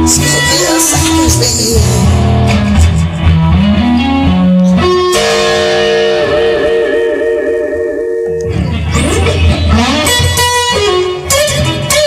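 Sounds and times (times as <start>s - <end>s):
rock electric guitar over bass: 0.0s - 12.0s.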